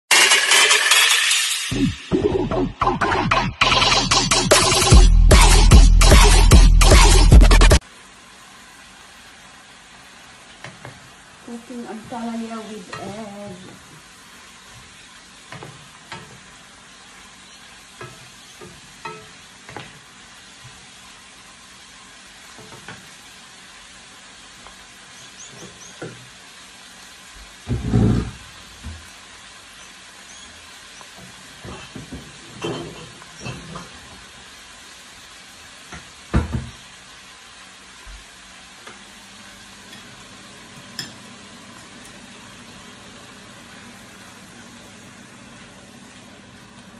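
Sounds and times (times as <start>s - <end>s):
vegetables sizzling in a pan: 4.4s - 46.9s
wooden spatula knocking on pan: 35.9s - 36.8s.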